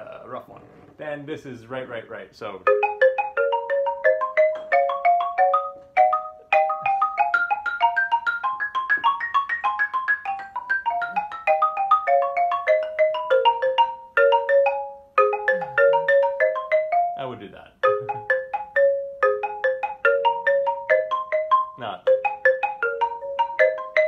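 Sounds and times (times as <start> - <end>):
xylophone played with mallets: 2.6 - 24.0.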